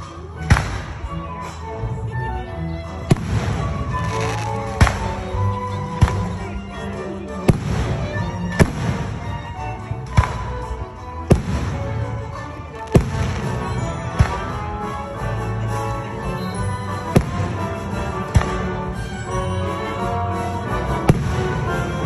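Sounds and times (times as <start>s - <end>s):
music playing: 0.0s - 22.0s.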